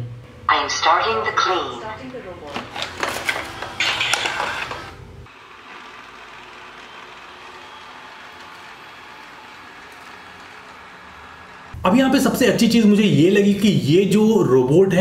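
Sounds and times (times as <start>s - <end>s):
robot vacuum whirring: 2.6s - 11.8s.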